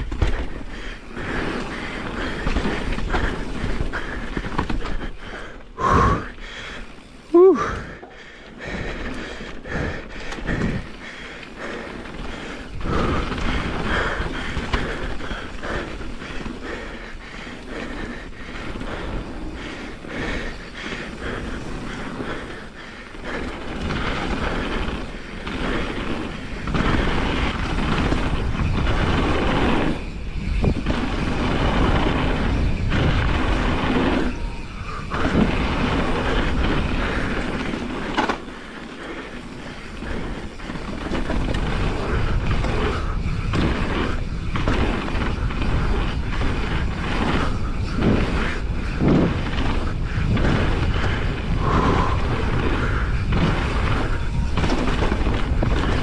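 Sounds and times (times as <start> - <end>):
bike knocks and rattles: 0.0 - 7.0, 7.6 - 56.0
bike tyres rolling and skidding: 0.0 - 56.0
wind on microphone: 17.8 - 56.0.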